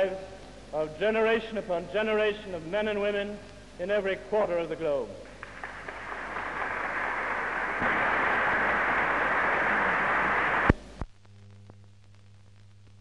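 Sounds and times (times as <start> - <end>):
faint hiss: 0.0 - 11.1
audience applause: 5.4 - 10.8.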